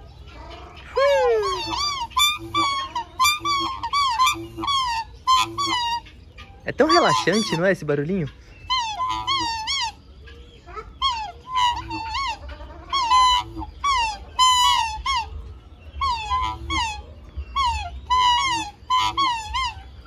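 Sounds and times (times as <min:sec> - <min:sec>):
animal high wavering cries: 0:00.0 - 0:07.9, 0:08.6 - 0:20.0.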